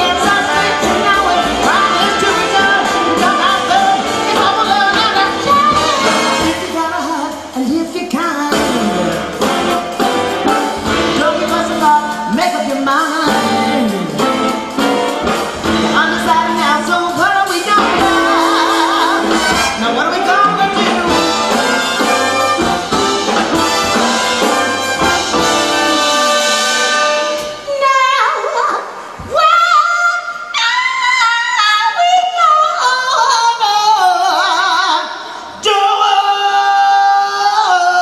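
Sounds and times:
big band playing: 0.0s - 38.0s
woman singing jazz: 0.0s - 38.0s.

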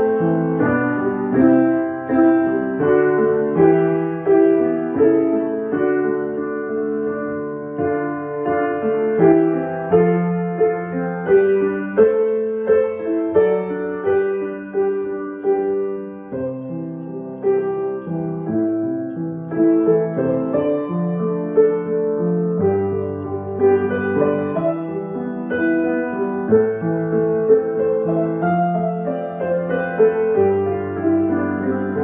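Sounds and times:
slow solo piano: 0.0s - 32.0s.

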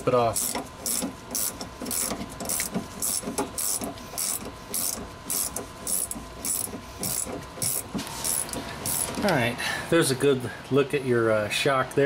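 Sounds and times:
ratcheting wrench clicking: 0.4s - 9.3s.

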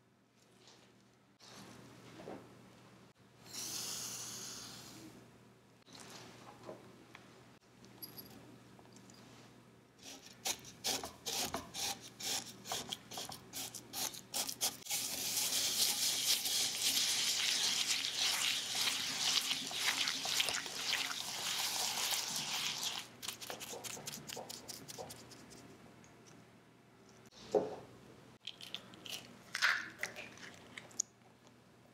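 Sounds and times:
whisk scraping sugar in glass bowl: 14.8s - 25.1s.

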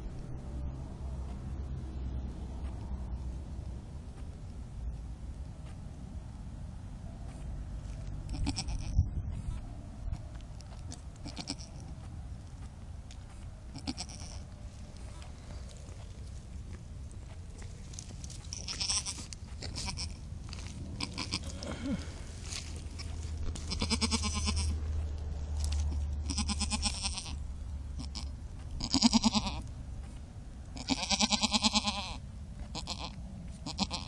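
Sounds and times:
goats bleating: 8.3s - 9.0s, 11.2s - 11.8s, 13.7s - 14.5s, 18.5s - 20.2s, 21.0s - 22.2s, 23.0s - 24.8s, 26.2s - 27.4s, 28.0s - 29.7s, 30.8s - 34.0s.

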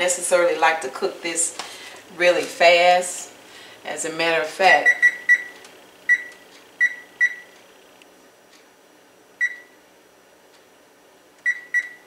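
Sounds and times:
oven keypad beeps: 4.8s - 7.6s, 9.4s - 9.8s, 11.4s - 12.0s.

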